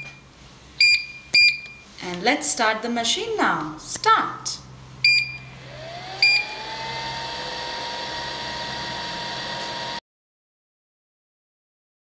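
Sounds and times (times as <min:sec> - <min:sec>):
control panel beeps: 0:00.0 - 0:00.2, 0:00.8 - 0:01.8, 0:05.0 - 0:05.5, 0:06.2 - 0:06.4
vacuum pump motor whine: 0:05.0 - 0:10.0.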